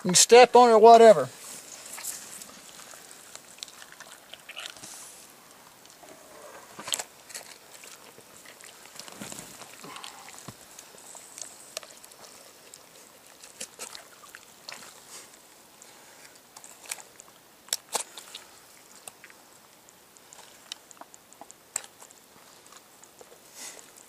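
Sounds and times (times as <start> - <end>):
wet meat smacks and clicks: 16.3 - 23.3.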